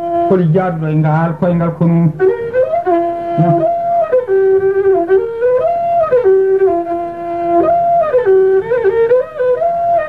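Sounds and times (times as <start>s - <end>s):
flute playing slow melody: 2.2s - 10.0s.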